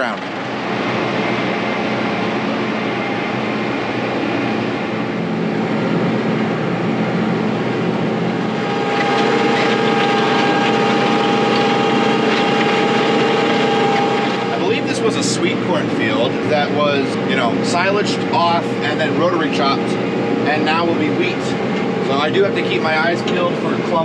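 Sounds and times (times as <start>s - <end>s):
steady whine: 0.0s - 24.0s
tractor engine under load: 8.4s - 16.3s.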